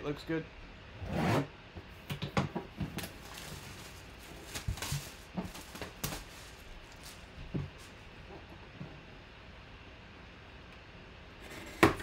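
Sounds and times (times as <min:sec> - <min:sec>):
plastic bag crinkling: 0:02.9 - 0:07.4.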